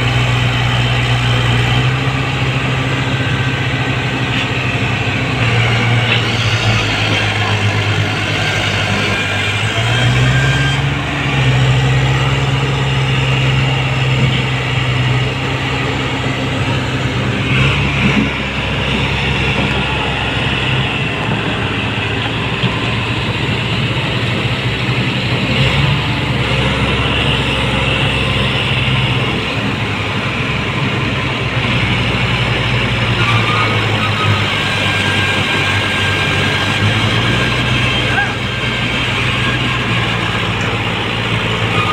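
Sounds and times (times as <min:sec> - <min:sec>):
tractor engines under heavy load: 0:00.0 - 0:41.9.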